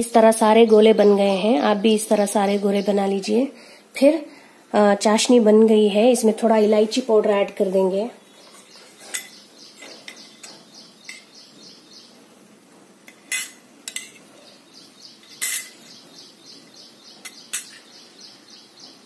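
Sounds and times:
metal utensil clinking on pan: 0:13.1 - 0:14.3, 0:15.2 - 0:16.0, 0:17.2 - 0:17.9.

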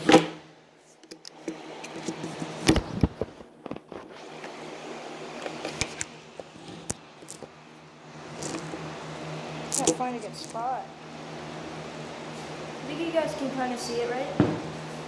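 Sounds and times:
thump: 0:14.4 - 0:14.7.

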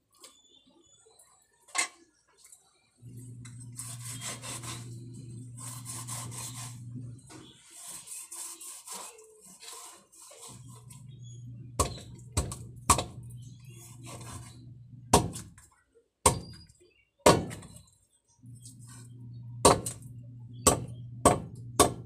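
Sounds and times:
low hum: 0:03.0 - 0:07.3, 0:10.6 - 0:15.4, 0:18.4 - 0:22.0
knife chopping on board: 0:11.8 - 0:13.2, 0:15.1 - 0:15.6, 0:16.3 - 0:16.6, 0:17.3 - 0:17.7, 0:19.6 - 0:20.0, 0:20.6 - 0:22.0.

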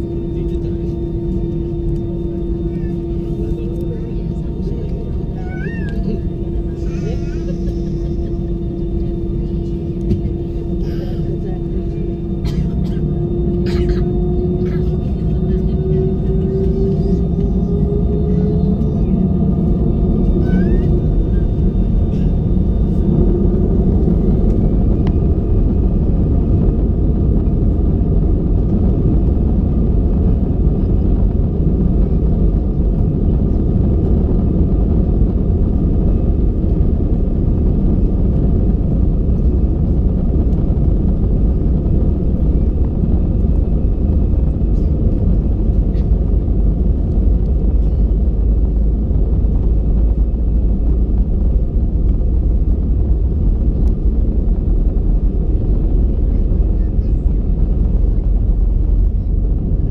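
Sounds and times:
airliner rumbling down runway: 0:00.0 - 0:59.9.

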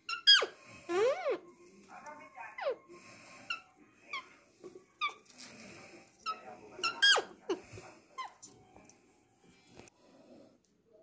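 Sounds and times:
parakeet squeaking and chirping: 0:00.0 - 0:01.6, 0:02.4 - 0:04.4, 0:05.0 - 0:05.4, 0:06.2 - 0:07.6.

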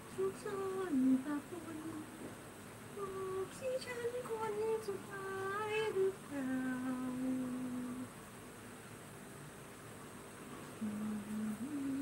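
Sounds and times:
woman humming: 0:03.0 - 0:08.1, 0:10.8 - 0:12.0.

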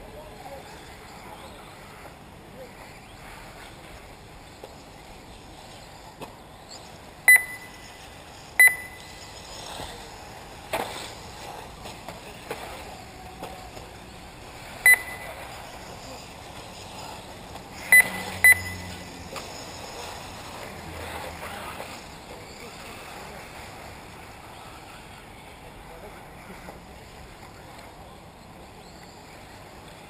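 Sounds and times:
outdoor background noise: 0:00.0 - 0:30.0
short electronic beeps: 0:07.3 - 0:08.0, 0:08.6 - 0:09.3, 0:14.8 - 0:15.4, 0:17.8 - 0:19.1.

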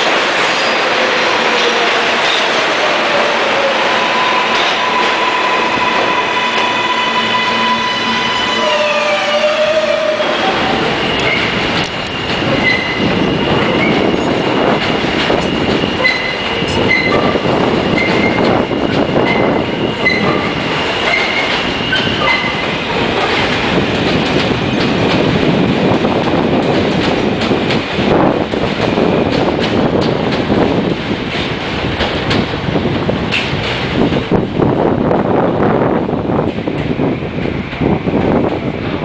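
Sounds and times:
subway train rumbling: 0:00.0 - 0:39.0
wheels clacking over rail joints: 0:09.7 - 0:33.9
short wheel squeals: 0:15.4 - 0:17.3, 0:19.3 - 0:22.7.

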